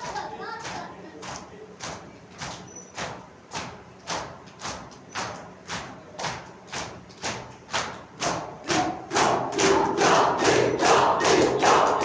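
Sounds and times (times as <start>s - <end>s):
crowd chanting: 8.6s - 12.0s.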